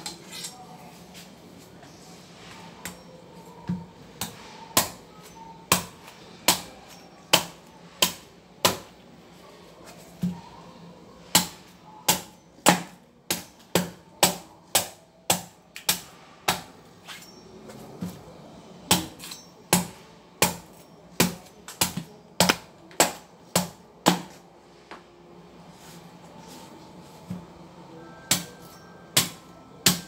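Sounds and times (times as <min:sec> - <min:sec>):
machete hacking coconut shell: 0:29.2 - 0:30.0.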